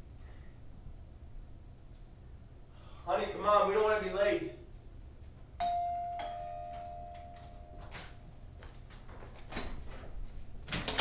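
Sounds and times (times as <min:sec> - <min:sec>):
two-tone doorbell chime: 0:05.6 - 0:08.2.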